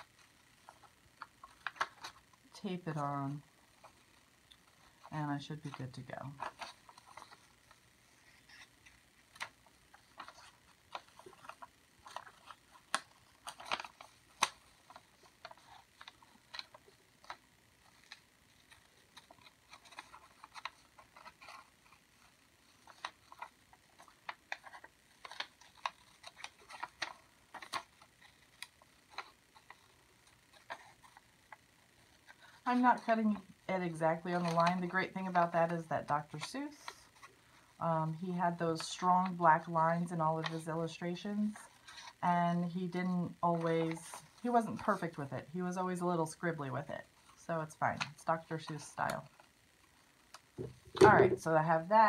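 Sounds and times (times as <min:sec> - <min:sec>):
paper rustling: 0:00.0 - 0:02.3, 0:03.8 - 0:37.8, 0:43.5 - 0:45.3, 0:50.6 - 0:51.4.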